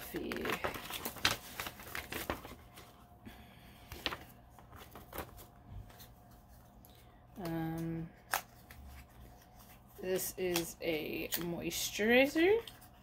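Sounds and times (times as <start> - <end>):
paper card rustling: 0.0 - 3.1, 3.9 - 7.1.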